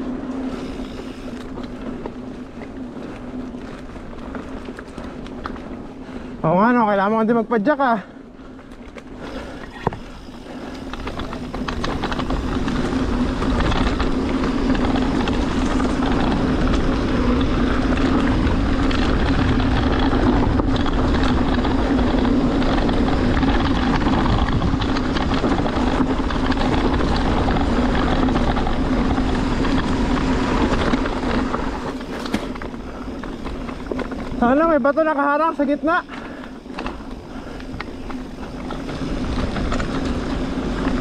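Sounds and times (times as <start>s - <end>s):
bike tyre noise on dirt: 0.0s - 41.0s
wind rush on microphone: 8.2s - 41.0s.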